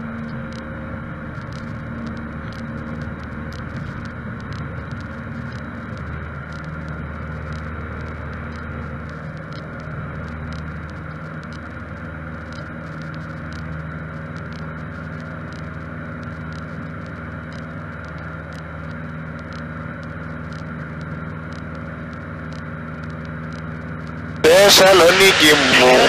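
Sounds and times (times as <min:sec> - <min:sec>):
airplane engine and propeller droning: 0:00.0 - 0:26.0.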